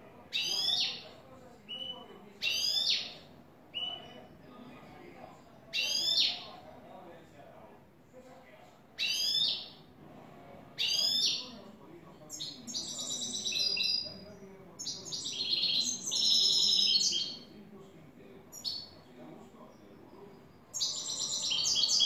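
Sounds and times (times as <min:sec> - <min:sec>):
finch singing trills: 0:00.3 - 0:01.0, 0:12.3 - 0:17.4, 0:20.7 - 0:22.0.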